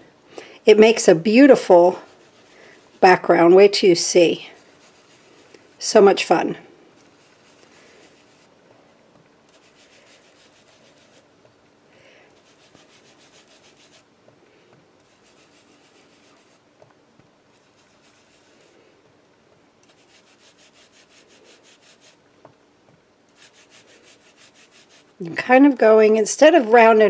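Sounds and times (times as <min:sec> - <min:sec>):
foam tool rubbing on cardstock: 0:01.0 - 0:08.6, 0:09.5 - 0:11.6, 0:12.3 - 0:14.2, 0:15.0 - 0:16.8, 0:17.5 - 0:19.2, 0:19.8 - 0:22.3, 0:23.3 - 0:25.2.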